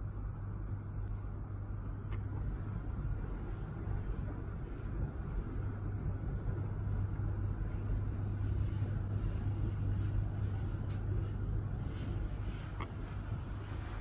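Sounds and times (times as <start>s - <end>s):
constant rumble: 0.0s - 14.0s
low engine hum: 0.0s - 14.0s.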